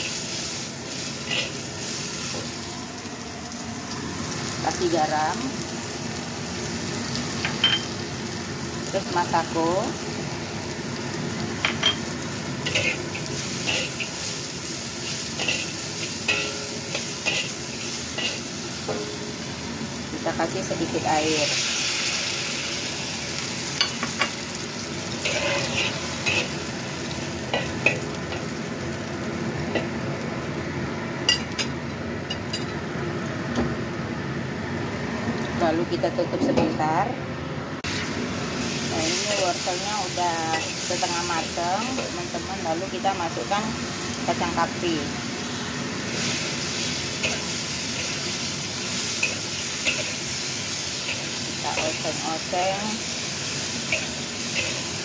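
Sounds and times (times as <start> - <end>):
food sizzling in a pan: 0.0 - 36.0, 37.8 - 55.0
metal spatula scraping a wok: 25.2 - 26.6.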